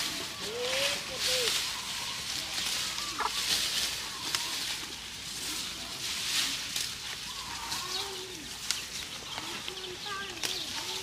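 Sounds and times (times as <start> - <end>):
cows chewing bamboo leaves: 0.0 - 11.0
sharp snaps of leaves: 0.0 - 11.0.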